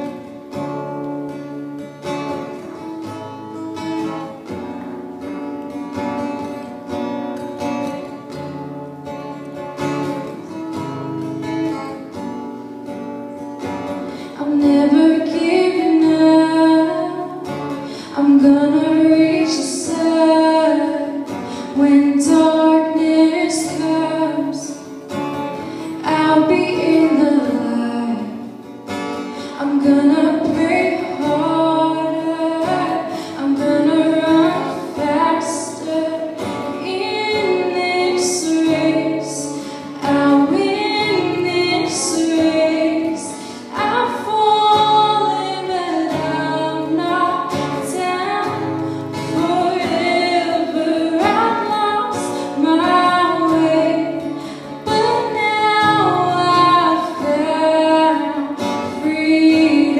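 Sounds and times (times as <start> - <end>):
acoustic guitar: 0.0 - 59.9.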